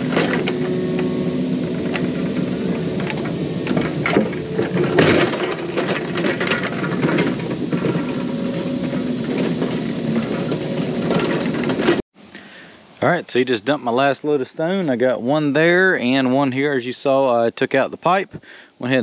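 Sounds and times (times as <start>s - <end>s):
excavator diesel engine running: 0.0s - 12.0s
sharp metal clanks: 0.0s - 12.0s.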